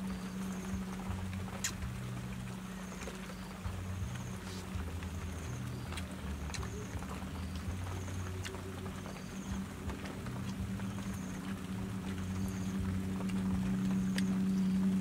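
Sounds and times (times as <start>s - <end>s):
low motor hum: 0.0s - 15.0s.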